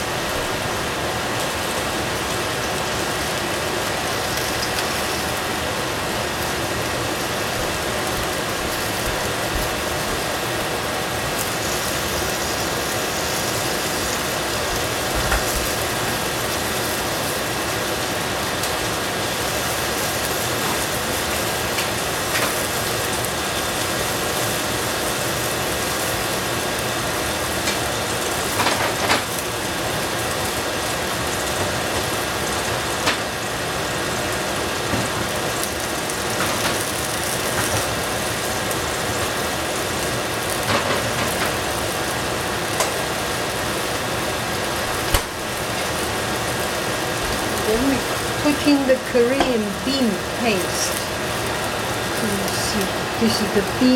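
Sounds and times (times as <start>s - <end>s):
meat sizzling in a pot: 0.0s - 53.9s
sharp pops and crackles: 45.0s - 45.7s.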